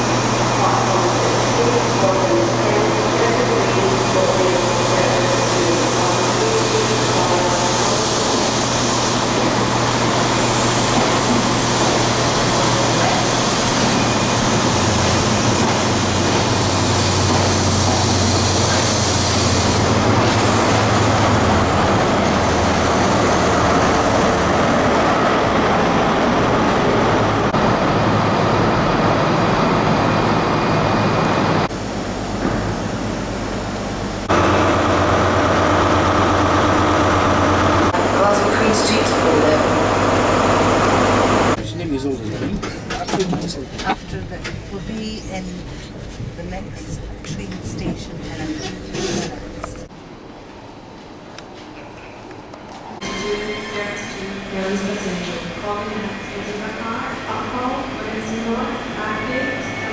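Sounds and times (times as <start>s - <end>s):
diesel engine drone: 0.0s - 44.3s
train wheels rumbling: 0.0s - 59.9s.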